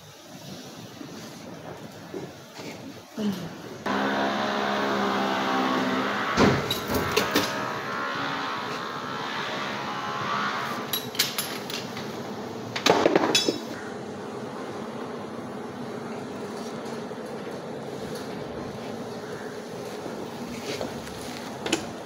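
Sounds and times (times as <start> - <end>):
steady machine hum: 3.7 - 22.0.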